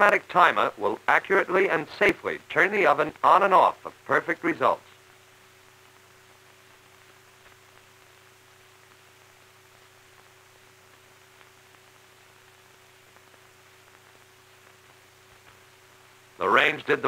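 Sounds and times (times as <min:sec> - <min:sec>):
film soundtrack hiss and hum: 0:00.0 - 0:17.0
faint ticks: 0:05.7 - 0:15.8.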